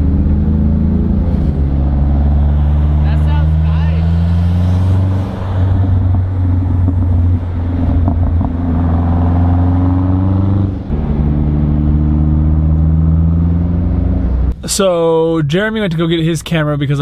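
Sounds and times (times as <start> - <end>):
car engine drone from inside cab: 0.0 - 16.3.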